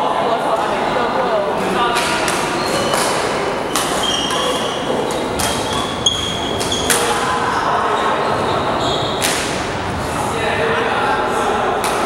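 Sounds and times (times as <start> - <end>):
echoing background chatter: 0.0 - 12.0
racket hitting shuttlecock: 1.9 - 7.2, 9.2 - 9.7
shoes squeaking on floor: 2.0 - 9.5.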